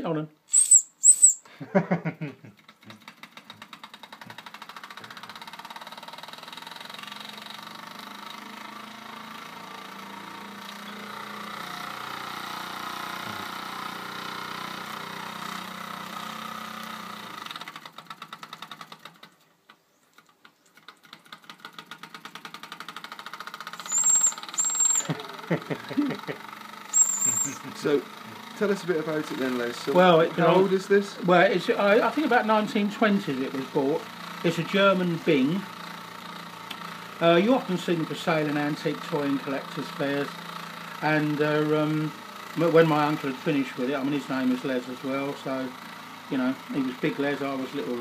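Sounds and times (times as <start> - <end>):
toy steam engine puffing: 0.5 - 1.5, 23.8 - 25.2.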